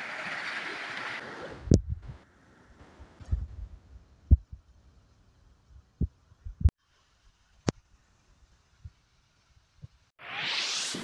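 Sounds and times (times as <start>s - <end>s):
dull low thumps: 1.6s - 2.2s, 3.2s - 4.8s, 5.7s - 6.8s.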